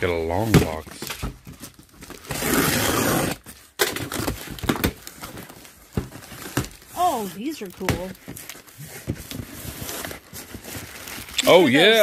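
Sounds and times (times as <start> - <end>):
cardboard flaps scraping and knocking: 0.3 - 7.2, 7.8 - 11.3
packing tape ripping from cardboard: 1.8 - 7.0.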